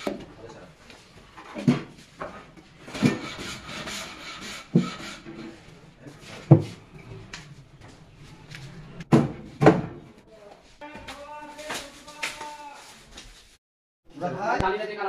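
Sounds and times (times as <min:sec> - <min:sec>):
cabinet scraping on tile floor: 0:01.4 - 0:07.3
wooden cabinet knocks: 0:09.1 - 0:10.1.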